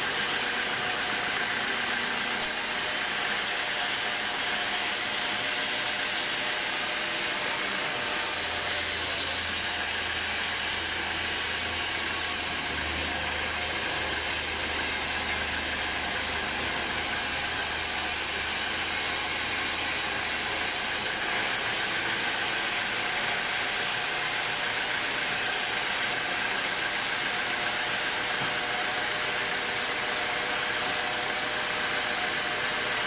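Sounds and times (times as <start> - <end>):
band saw cutting log: 0.0 - 22.6.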